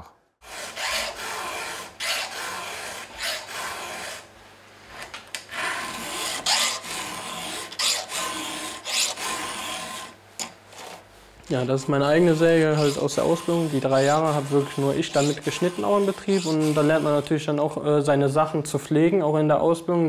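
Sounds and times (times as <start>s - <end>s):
file sharpening saw chain: 7.7s - 8.2s, 8.8s - 9.2s.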